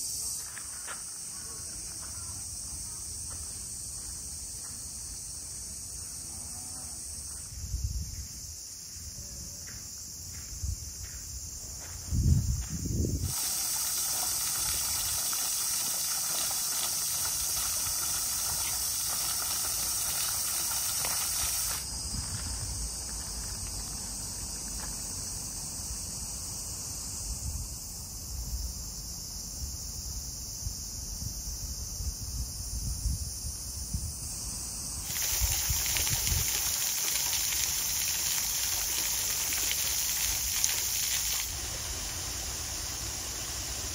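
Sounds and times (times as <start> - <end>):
cicadas droning: 0.0 - 43.9.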